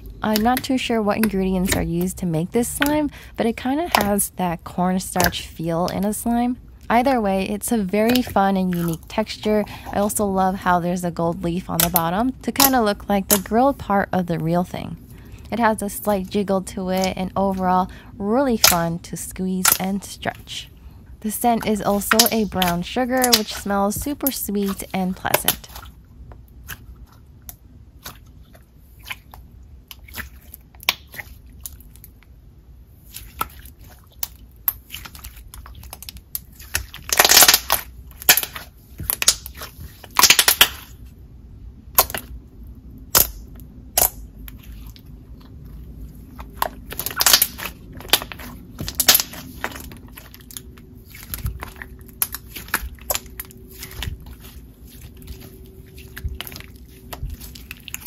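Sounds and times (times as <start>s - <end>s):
crackly slime bursts: 36.2s - 41.0s, 46.5s - 58.0s.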